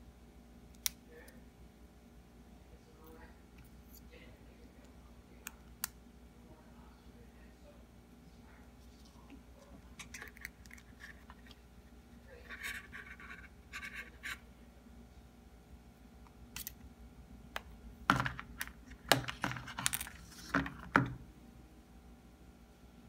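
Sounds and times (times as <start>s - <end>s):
fingers scratching on phone: 12.4s - 14.4s.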